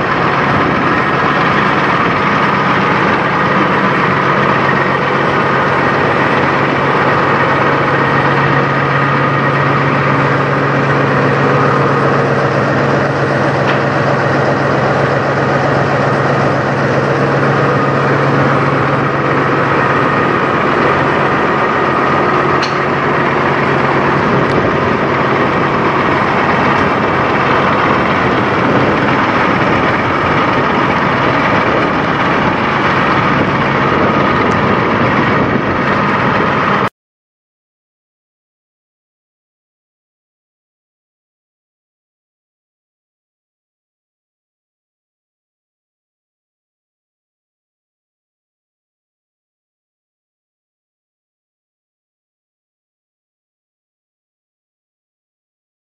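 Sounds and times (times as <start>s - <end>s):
truck diesel engine idling: 0.0s - 36.9s.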